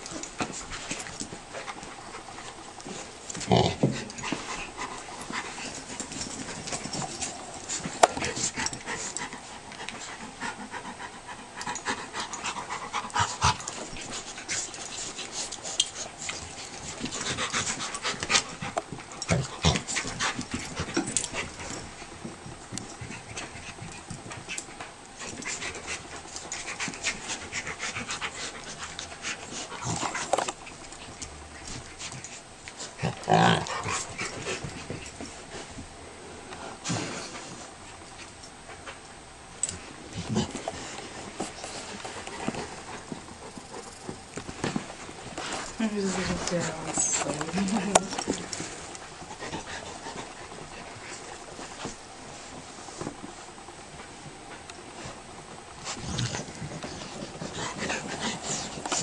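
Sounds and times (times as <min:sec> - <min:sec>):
dogs scuffling: 0:00.0 - 0:10.2, 0:39.6 - 0:59.0
dogs panting: 0:00.0 - 0:35.8, 0:39.7 - 0:59.0.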